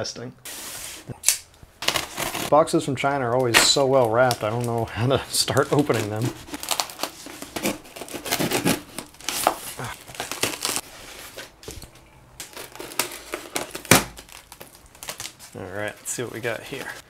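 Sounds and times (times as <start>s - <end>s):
knife cutting packing tape: 1.2s - 2.5s, 5.6s - 10.8s, 12.4s - 15.5s
packing tape and plastic tearing: 1.2s - 2.6s, 3.3s - 15.6s.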